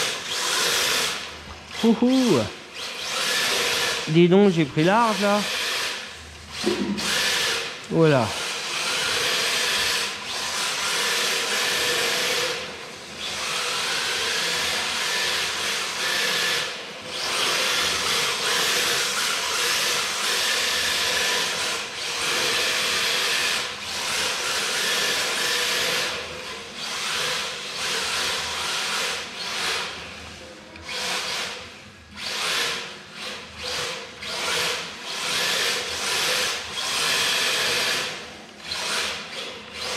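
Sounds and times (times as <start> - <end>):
electric motor whining: 0.0 - 12.6.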